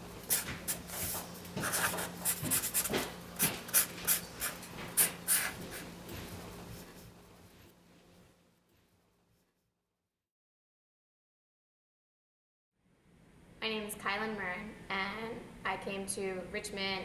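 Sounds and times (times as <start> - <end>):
marker scratching on paper: 0.3 - 5.9.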